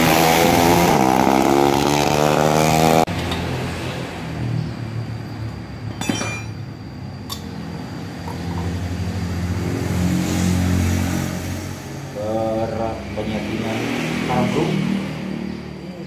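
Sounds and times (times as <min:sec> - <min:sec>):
sharp metallic clink: 0:05.8 - 0:07.6.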